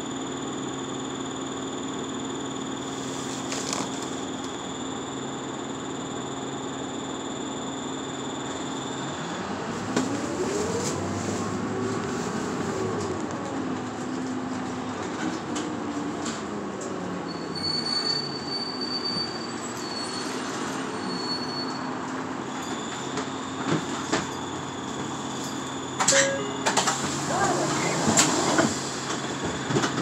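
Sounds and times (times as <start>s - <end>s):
drivetrain whine: 0.0s - 17.6s
bus engine and road rumble: 2.8s - 4.6s, 8.4s - 30.0s.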